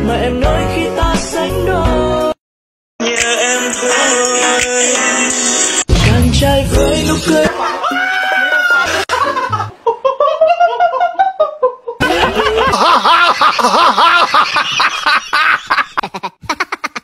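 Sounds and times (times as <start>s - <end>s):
person laughing: 7.4s - 17.0s.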